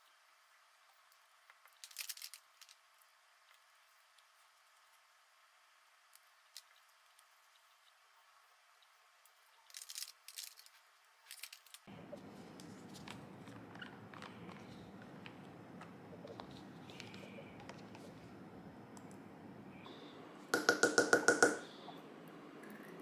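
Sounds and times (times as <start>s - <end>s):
room hiss: 11.9s - 23.0s.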